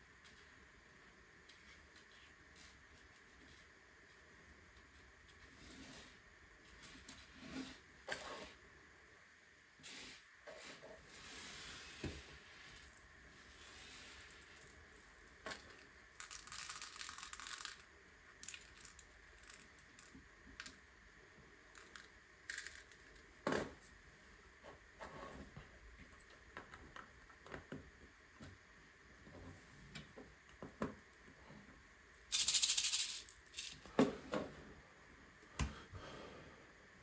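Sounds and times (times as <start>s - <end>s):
plastic bricks clicking together: 15.5s - 20.8s, 21.7s - 23.4s, 32.3s - 33.8s.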